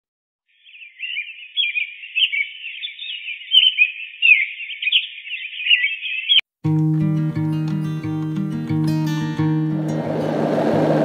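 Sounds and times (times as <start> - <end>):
small birds chirping: 0.5 - 6.5.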